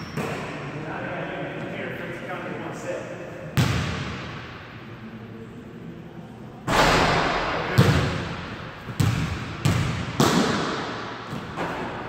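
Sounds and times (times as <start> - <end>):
basketball hitting hoop: 3.6 - 4.4, 6.7 - 12.0
basketball bouncing on hardwood: 8.9 - 10.4.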